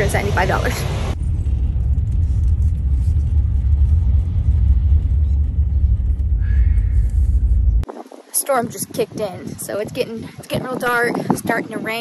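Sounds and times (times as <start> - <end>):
van driving rumble: 0.0 - 7.9.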